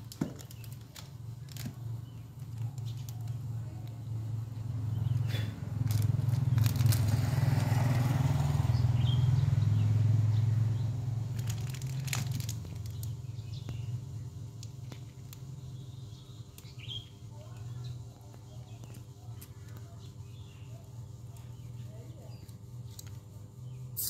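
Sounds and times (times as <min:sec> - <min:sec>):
vehicle engine running: 0:00.0 - 0:23.9
plastic packaging crinkling: 0:05.8 - 0:07.3, 0:11.3 - 0:13.2
bird chirping: 0:08.6 - 0:24.0.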